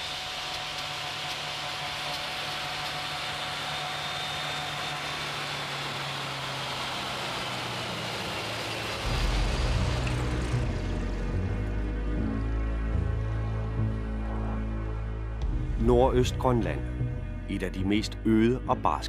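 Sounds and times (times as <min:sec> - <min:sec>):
snow vehicle engine running: 0:00.0 - 0:15.6
low music: 0:09.0 - 0:19.0.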